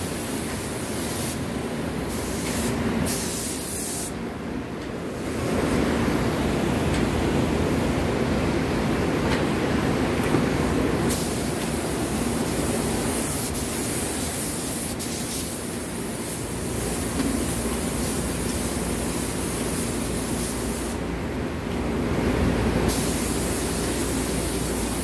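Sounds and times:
paint spray guns hissing: 2.1s - 4.2s, 11.1s - 21.0s, 22.9s - 25.0s.

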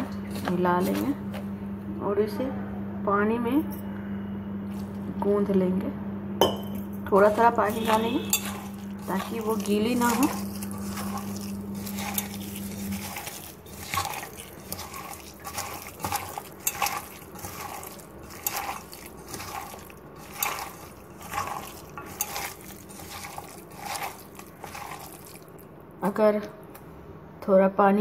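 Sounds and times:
low steady hum: 0.0s - 27.4s
hand squelching wet batter: 7.1s - 25.7s.

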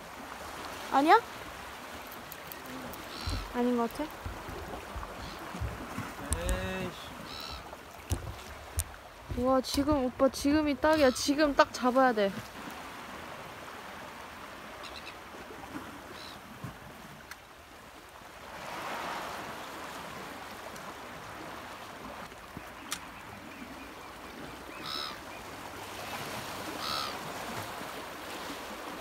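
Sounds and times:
sea washing over rocks: 0.0s - 22.6s
short bird calls: 3.0s - 3.6s, 7.0s - 7.7s, 22.7s - 25.5s, 26.8s - 27.2s.

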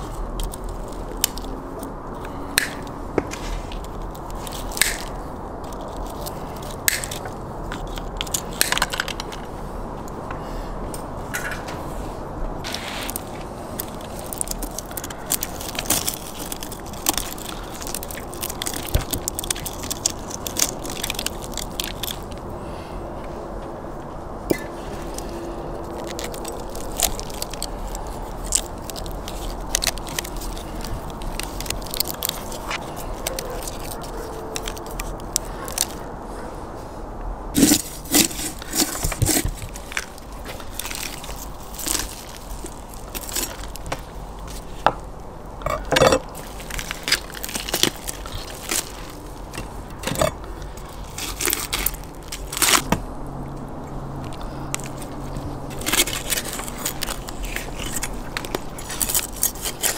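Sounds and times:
crisp roasted skin crackling: 0.0s - 9.2s, 12.6s - 22.6s, 24.6s - 36.1s, 37.5s - 59.9s
meat crunching as pulled apart: 12.7s - 22.5s, 24.5s - 36.0s, 37.6s - 44.7s, 45.6s - 59.9s.

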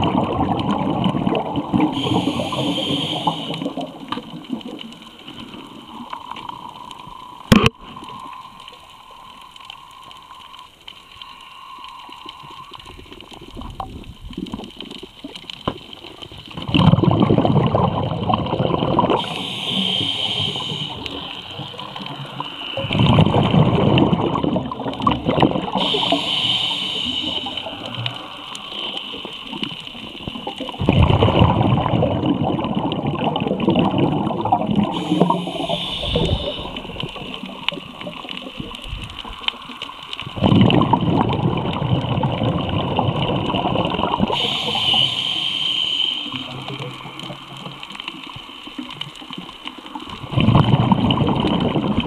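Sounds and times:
exhaled bubbles rushing underwater: 0.0s - 10.9s, 11.7s - 52.0s
diving regulator hiss: 1.8s - 4.1s, 19.1s - 23.4s, 25.5s - 30.8s, 34.4s - 40.4s, 44.1s - 48.7s.

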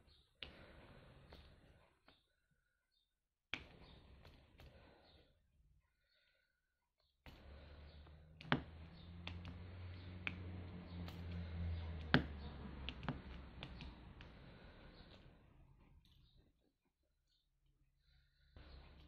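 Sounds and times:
low steady hum: 7.4s - 16.4s.

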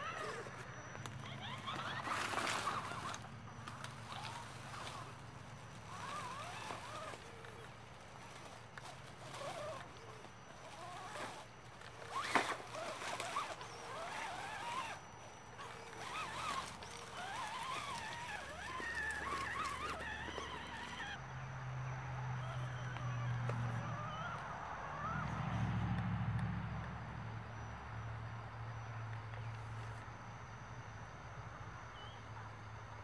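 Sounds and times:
electric motor and gears whining: 0.0s - 21.2s.

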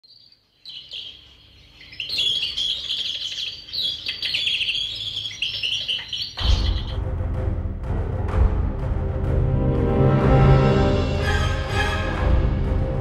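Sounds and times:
birds chirping and singing: 0.0s - 7.0s
low dark music: 6.4s - 13.0s.

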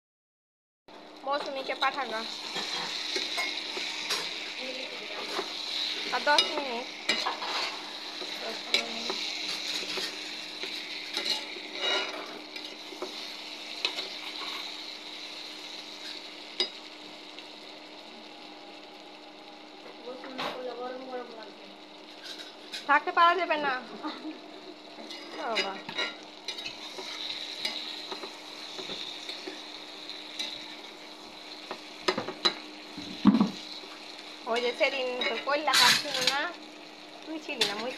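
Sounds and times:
chicken sizzling in a frying pan: 0.9s - 37.9s
spatula scraping a pan: 1.8s - 14.8s, 22.1s - 22.9s, 25.0s - 29.6s.

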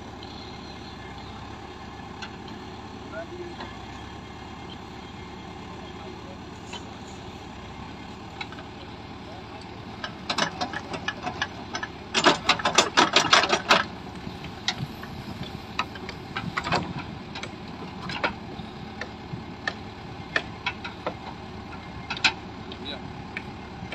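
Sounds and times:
diesel engine running: 0.0s - 23.9s
rapid clatter of knocks: 10.0s - 18.4s, 19.0s - 22.5s.

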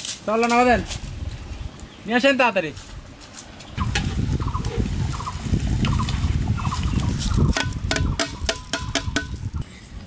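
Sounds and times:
metal tray knocking pot rim: 7.5s - 9.4s.

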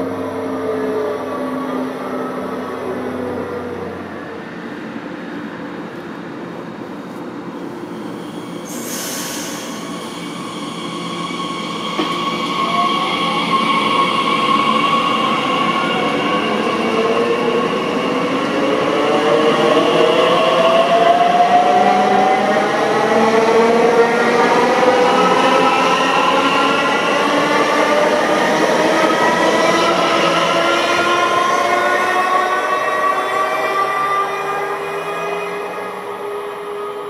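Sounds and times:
train running noise: 2.1s - 17.7s
brief hiss: 8.7s - 9.8s.

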